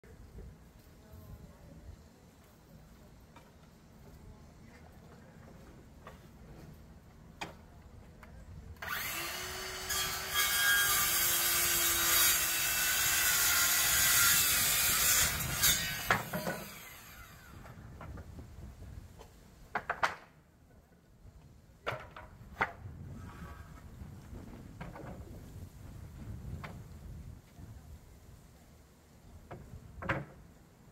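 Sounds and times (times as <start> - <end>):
circular saw cutting wood: 8.8 - 17.8.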